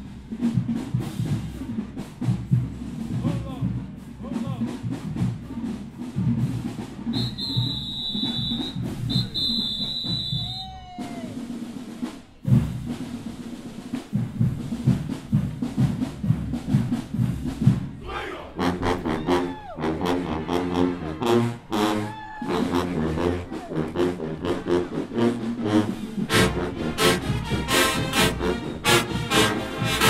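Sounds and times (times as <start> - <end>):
marching band horns: 0.0 - 30.0
snare and bass drums: 0.0 - 30.0.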